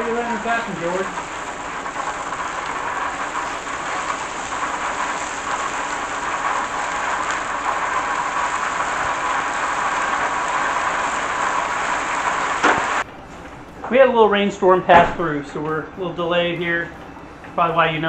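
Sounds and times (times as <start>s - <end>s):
bacon sizzling on griddle: 0.0s - 13.1s.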